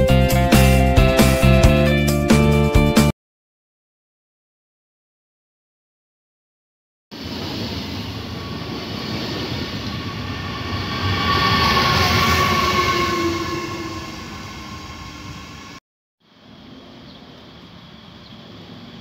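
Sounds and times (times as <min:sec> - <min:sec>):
train passing rumble: 0:07.3 - 0:15.8
locomotive whining tones: 0:08.3 - 0:15.8.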